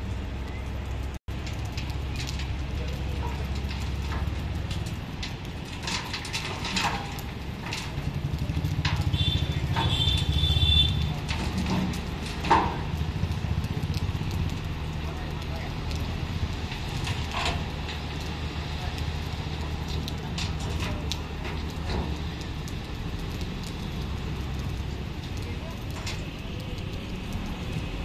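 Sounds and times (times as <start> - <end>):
diesel engine rumbling: 0.0 - 28.0
scattered knocks: 3.4 - 13.4.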